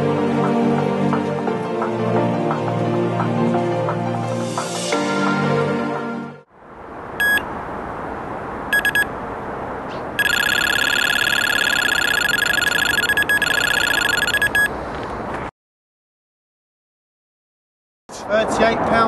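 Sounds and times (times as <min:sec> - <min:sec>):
electronic bite alarm beeping: 0:07.2 - 0:07.5, 0:08.7 - 0:09.1, 0:10.2 - 0:14.7.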